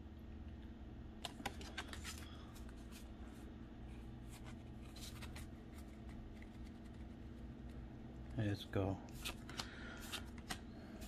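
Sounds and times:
low steady hum: 0:00.0 - 0:11.0
cards flicking and clicking: 0:01.2 - 0:02.3, 0:09.1 - 0:11.0.

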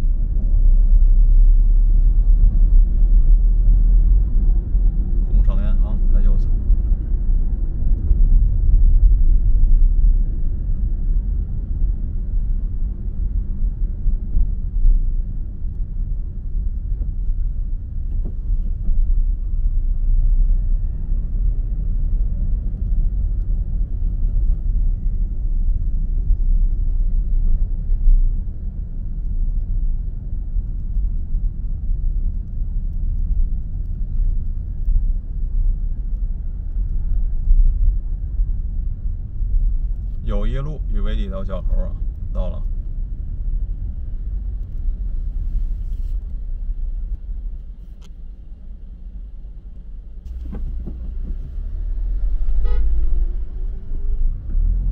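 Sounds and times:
car rumble from inside cabin: 0:00.0 - 0:54.9.

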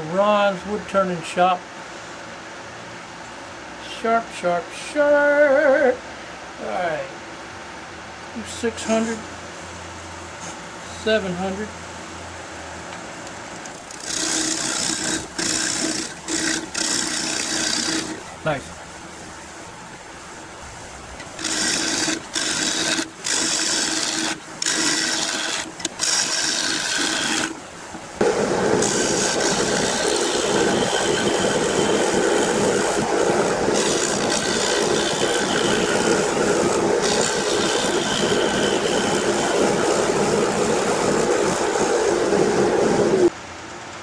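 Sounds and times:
gouge scraping wood on lathe: 0:13.7 - 0:18.4, 0:21.2 - 0:41.9.

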